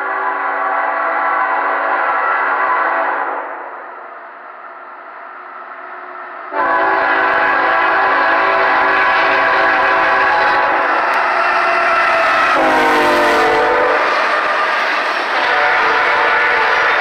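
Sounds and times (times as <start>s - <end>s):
locomotive air horn chord: 0.0s - 3.6s, 6.5s - 11.2s, 12.5s - 17.0s
rumble of passing train: 0.0s - 17.0s.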